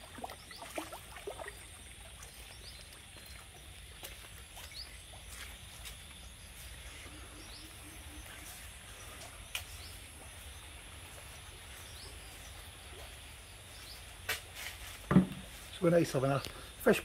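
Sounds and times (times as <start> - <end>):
faint bird chirps: 6.2 - 14.2.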